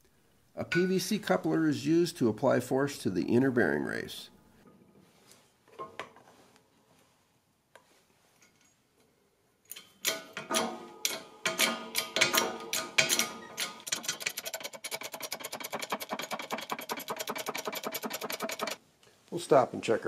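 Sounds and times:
press clicking and knocking: 10.0s - 18.8s.

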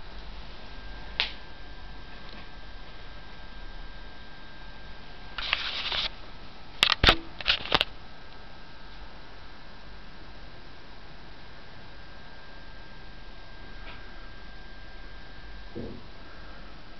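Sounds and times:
camera handling rustle: 5.4s - 6.1s, 6.8s - 7.9s
camera clicks: 6.8s - 7.9s.

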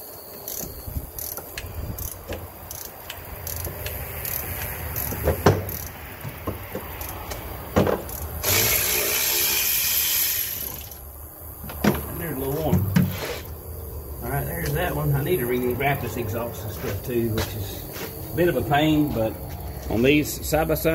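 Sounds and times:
ratchet wrench clicking: 0.5s - 6.0s, 7.0s - 7.4s, 8.1s - 11.0s
sharp metal knocks: 5.0s - 8.3s
steady hiss: 8.1s - 20.9s.

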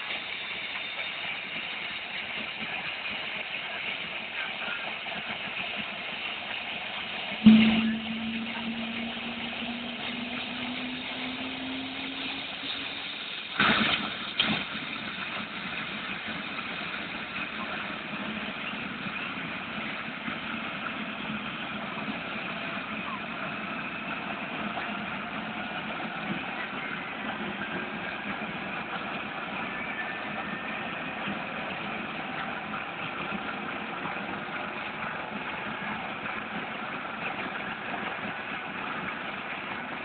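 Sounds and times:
sharp thumps: 7.5s - 11.6s.

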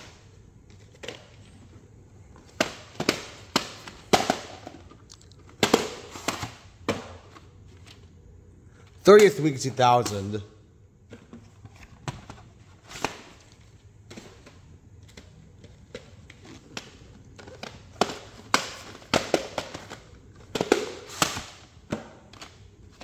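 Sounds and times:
plastic cases clicking and knocking: 11.1s - 23.0s.

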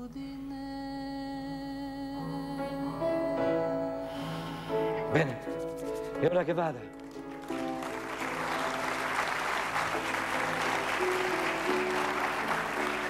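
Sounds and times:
instrumental music: 1.2s - 13.0s
audience applause: 7.0s - 13.0s.

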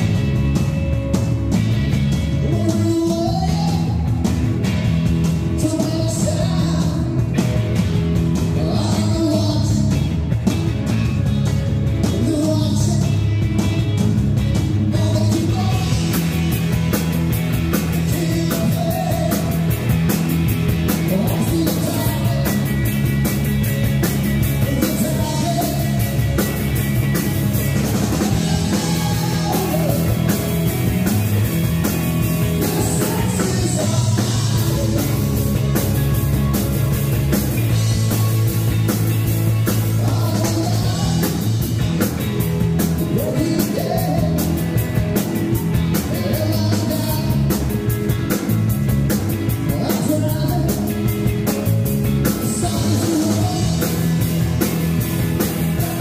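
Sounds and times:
bass guitar: 0.0s - 56.0s
drum kit: 0.0s - 56.0s
electric guitar: 0.0s - 56.0s
person singing lead vocals: 2.3s - 4.3s, 5.4s - 7.3s, 8.4s - 10.1s, 12.1s - 13.3s, 14.8s - 16.4s, 17.8s - 19.9s, 20.9s - 22.9s, 24.5s - 26.4s, 27.4s - 37.1s, 39.6s - 48.0s, 49.5s - 54.4s, 55.5s - 56.0s.

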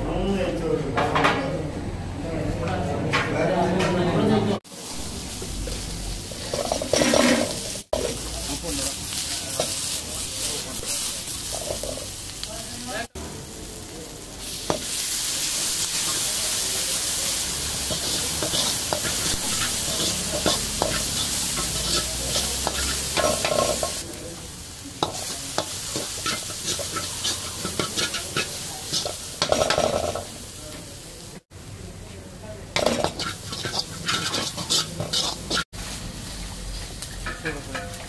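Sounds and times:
food sizzling in a pan: 4.6s - 38.0s
metal ladle scraping a pan: 6.4s - 7.6s, 32.8s - 35.7s.

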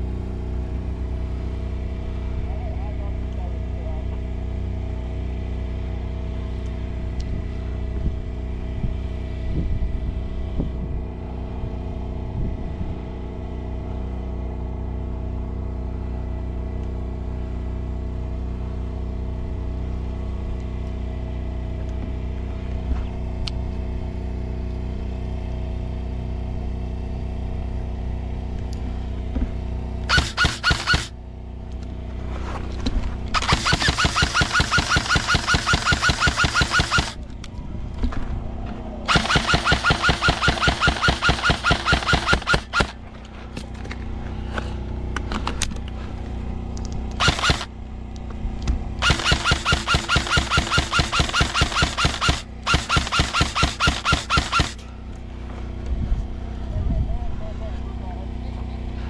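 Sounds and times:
steady low hum: 0.0s - 59.0s
airsoft gun shots: 30.1s - 31.1s, 33.4s - 37.2s, 39.1s - 43.0s, 47.2s - 47.7s, 49.0s - 54.8s.

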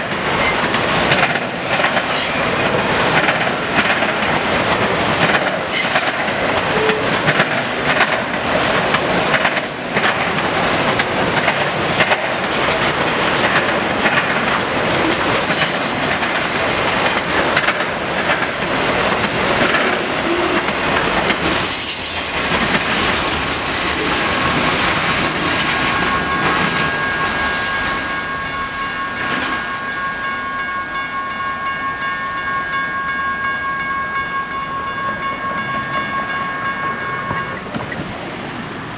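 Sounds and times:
train wheels clattering over joints: 0.2s - 26.9s
railroad crossing bell ringing: 1.9s - 10.0s, 10.6s - 38.2s
high wheel squeal: 25.2s - 28.8s.

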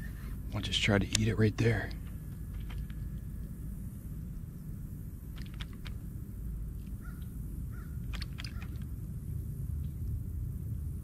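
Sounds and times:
harsh bird calls: 7.0s - 8.8s.

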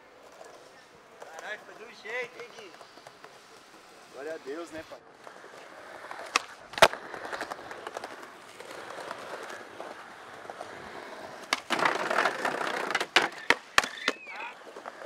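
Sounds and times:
skateboard wheels rolling on concrete: 0.0s - 15.0s
skateboard deck clacks: 5.2s - 15.0s
skateboard scraping wooden ledge: 5.2s - 15.0s.

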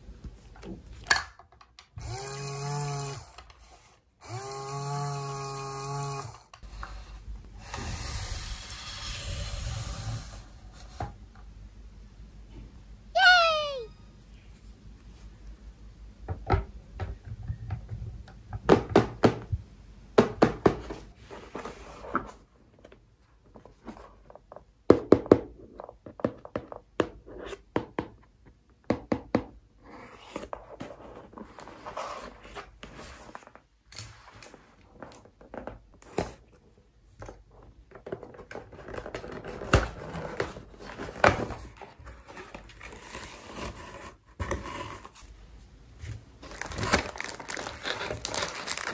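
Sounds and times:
plastic toys tapping and knocking: 16.3s - 19.5s
cardboard and paper rustling: 20.9s - 24.6s, 30.2s - 45.4s, 46.0s - 48.9s.

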